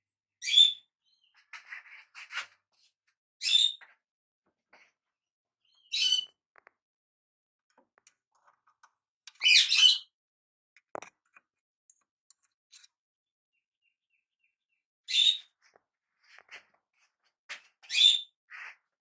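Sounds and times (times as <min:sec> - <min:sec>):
bird chirping: 0:05.6 - 0:06.4, 0:09.3 - 0:10.1, 0:13.5 - 0:15.6.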